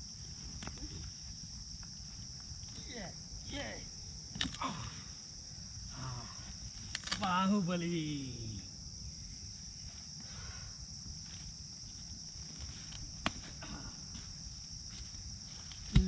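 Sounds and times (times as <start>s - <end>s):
forest insects chorus: 0.0s - 16.0s
wood snapping: 4.3s - 4.7s, 6.9s - 7.3s, 15.7s - 16.0s.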